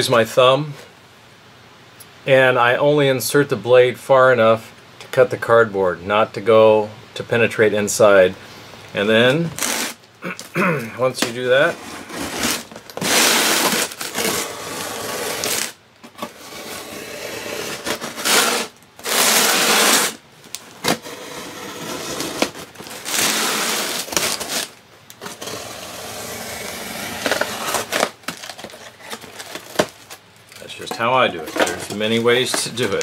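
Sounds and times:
knife slitting tape and cardboard: 9.6 - 10.0, 11.2 - 20.2, 20.8 - 33.0
cardboard box being handled: 27.1 - 33.0.

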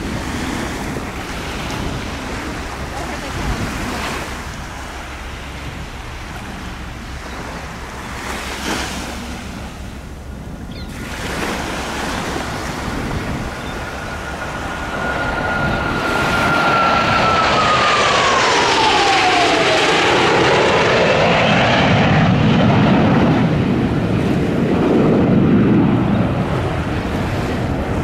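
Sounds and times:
surf hiss: 0.0 - 16.5
high jet whine: 0.0 - 28.0
jet engines roaring: 0.0 - 28.0
wind: 0.0 - 28.0.

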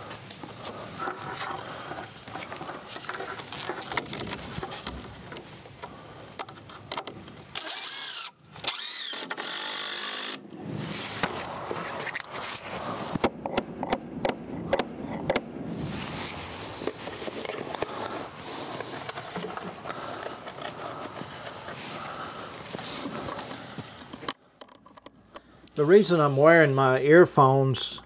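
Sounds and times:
cordless drill whining: 7.5 - 10.5.

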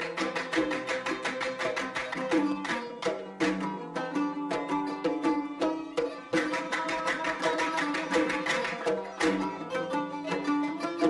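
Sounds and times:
men handclapping in unison: 0.0 - 4.8, 6.2 - 11.0
frame drums: 0.0 - 10.5
oud playing: 0.0 - 11.0
violin playing: 0.0 - 11.0.

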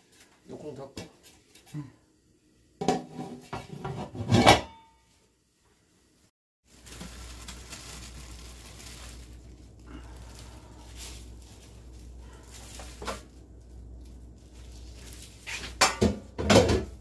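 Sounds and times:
faint rustling of gloved hands: 6.6 - 15.8
steady low hum: 6.7 - 17.0.

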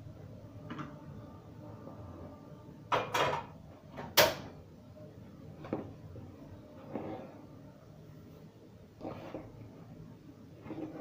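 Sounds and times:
hand scraping dough in plastic bowl: 6.7 - 7.6, 8.9 - 11.0.

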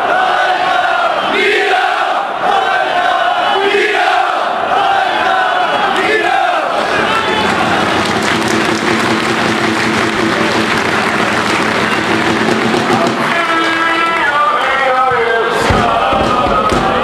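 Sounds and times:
crowd singing a chant: 0.0 - 7.9, 14.2 - 17.0
crowd clapping: 6.7 - 15.0.

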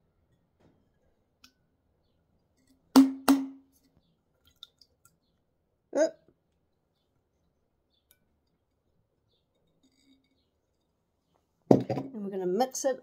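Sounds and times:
knocks on glass bottle: 11.7 - 12.1.

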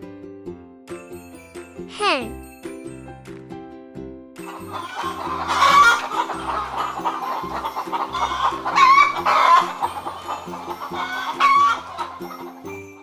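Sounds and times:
soft background music: 0.0 - 13.0
hen clucking: 4.7 - 12.6.

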